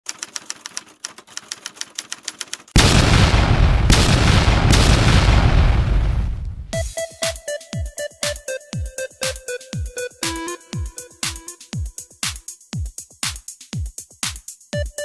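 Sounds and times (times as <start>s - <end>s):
rapid sharp clicks: 0.1s - 6.8s
loud rushing boom: 2.8s - 6.8s
electronic music with kick drum: 6.7s - 15.0s.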